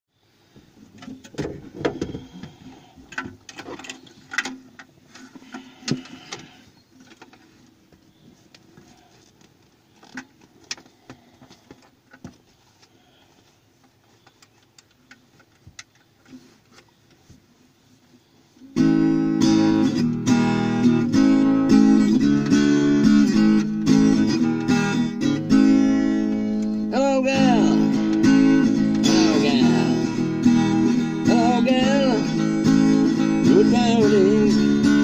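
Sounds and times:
guitar handling knocks and rubbing: 0.6s - 12.8s.

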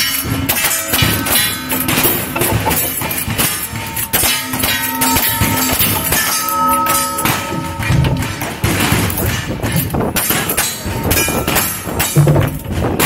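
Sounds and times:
steel plates ringing: 0.0s - 12.8s.

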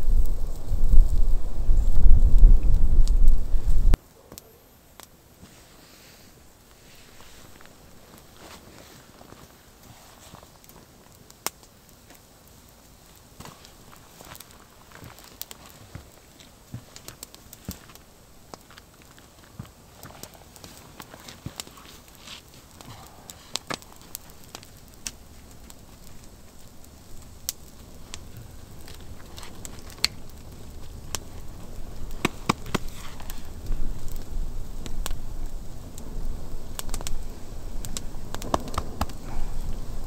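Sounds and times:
low rumble: 0.0s - 4.0s
wood fire crackling and popping: 0.0s - 40.0s.

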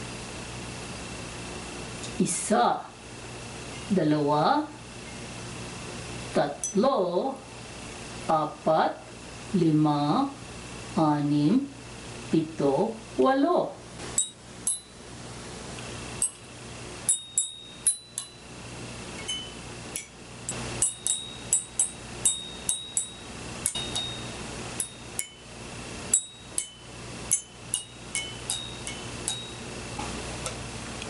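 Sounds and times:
small gongs struck with a stick: 17.1s - 18.4s, 19.2s - 25.5s, 26.1s - 29.7s.

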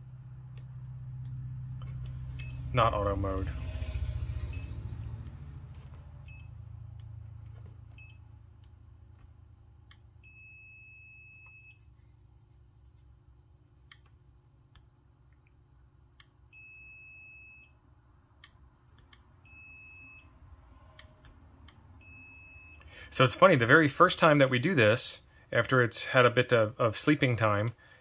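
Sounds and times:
faint low hum: 0.0s - 28.0s
multimeter continuity beep: 10.2s - 11.9s, 16.5s - 17.8s, 19.4s - 20.4s, 22.0s - 22.9s
probe and relay clicks: 18.4s - 19.3s.

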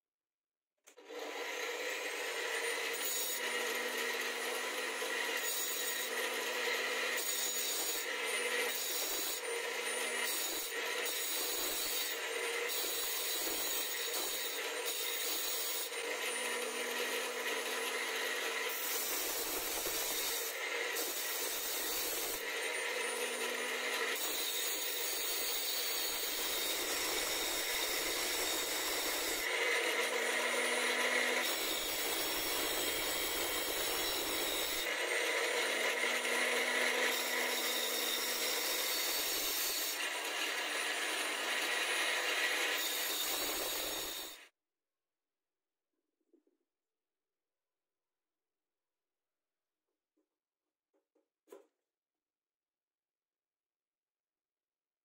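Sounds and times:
drill bit grinding against disc: 1.0s - 44.4s.

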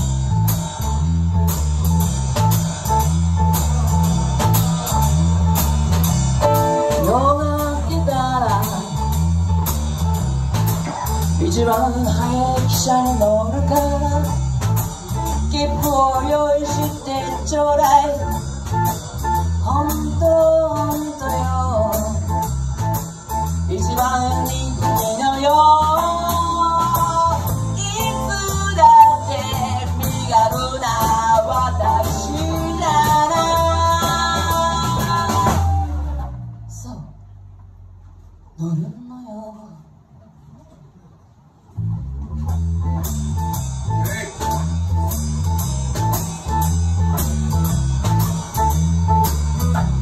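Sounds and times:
live band playing: 0.0s - 37.0s, 41.7s - 50.0s.

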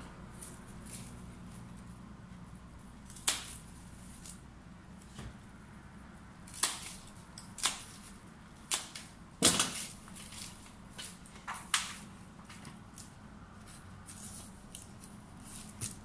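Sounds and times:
scissors snipping palm fronds: 0.3s - 1.7s, 3.0s - 4.4s, 6.4s - 12.1s, 12.9s - 16.0s.

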